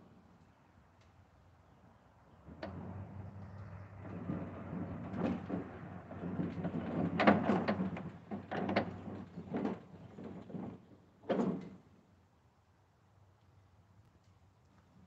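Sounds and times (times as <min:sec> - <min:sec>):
engine low hum: 0:00.0 - 0:11.1.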